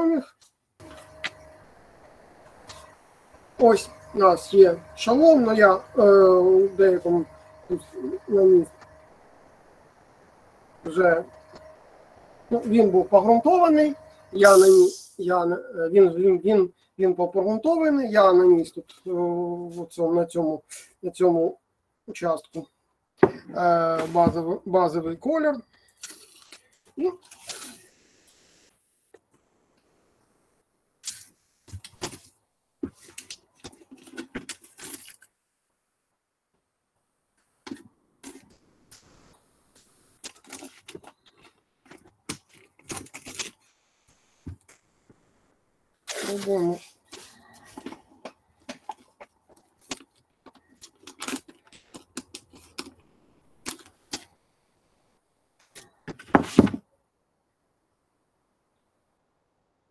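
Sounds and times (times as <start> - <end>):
small objects clicking and rustling: 47.1 - 54.3.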